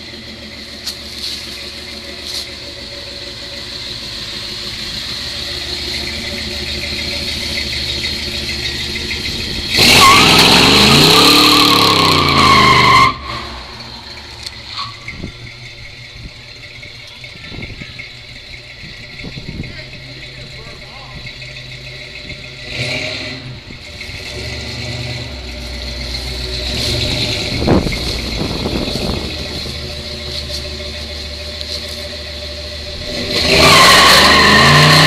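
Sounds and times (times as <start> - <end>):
car engine running and revving: 0.0 - 35.0
tyres squealing: 5.4 - 25.2.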